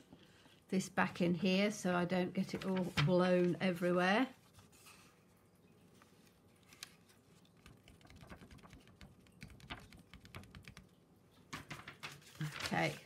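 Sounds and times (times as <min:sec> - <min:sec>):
paper crinkling and tapping: 0:02.4 - 0:03.6, 0:06.0 - 0:10.9, 0:11.5 - 0:13.0.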